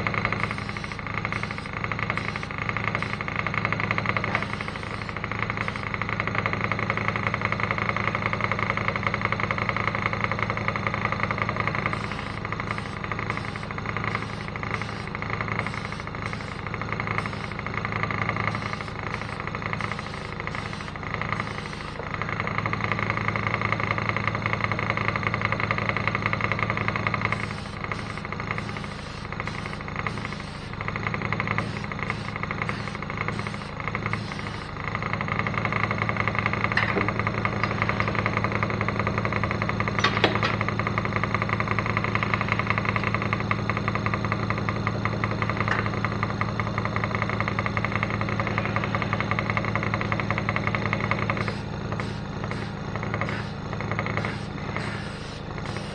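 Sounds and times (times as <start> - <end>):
air compressor motor hum: 0.0 - 55.9
short high bursts: 51.4 - 55.9.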